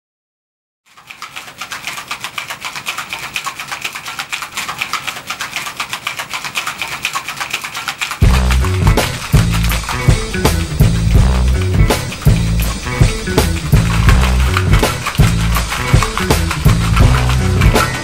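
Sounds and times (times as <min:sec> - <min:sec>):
ice rattling in cocktail shaker: 0:00.9 - 0:18.0
loud music with heavy bass: 0:08.2 - 0:18.0.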